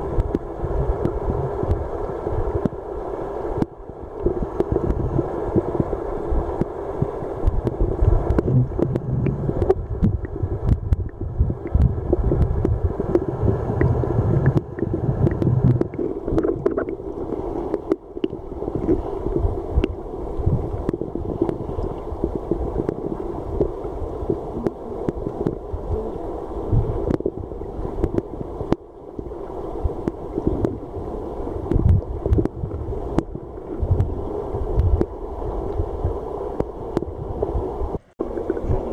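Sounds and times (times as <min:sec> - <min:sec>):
muffled underwater river rushing: 0:00.0 - 0:38.9
small underwater clicks and knocks: 0:00.2 - 0:01.8, 0:02.6 - 0:02.8, 0:03.6 - 0:05.9, 0:06.6 - 0:20.0, 0:20.8 - 0:25.6, 0:26.7 - 0:28.9, 0:30.0 - 0:30.8, 0:31.6 - 0:34.2, 0:36.6 - 0:37.5, 0:38.3 - 0:38.8.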